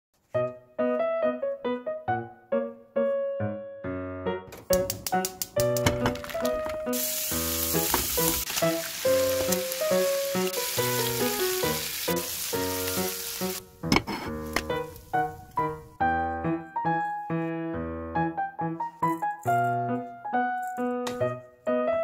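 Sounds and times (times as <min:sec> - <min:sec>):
background music: 0:00.2 - 0:22.0
meat sizzling in a pan: 0:06.9 - 0:13.6.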